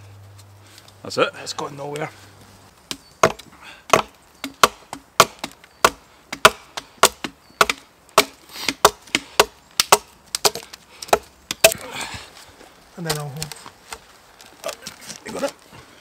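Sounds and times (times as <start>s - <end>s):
axe chopping log: 2.9s - 11.9s.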